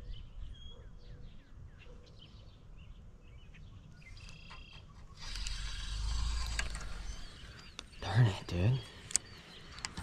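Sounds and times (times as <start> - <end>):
faint bird chirps: 0.0 - 10.0
fishing reel whirring: 5.2 - 7.4.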